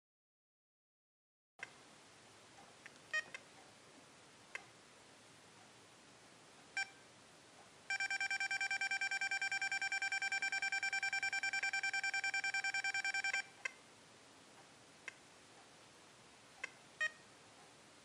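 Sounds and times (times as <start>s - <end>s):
keypad beeping: 7.9s - 13.8s, 16.6s - 17.2s.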